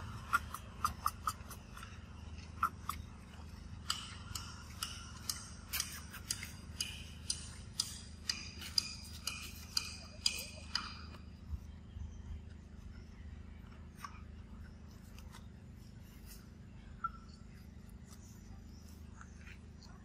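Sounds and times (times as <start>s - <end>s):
sharp clicks and ticks: 0.0s - 11.3s
faint low hum: 0.0s - 20.0s.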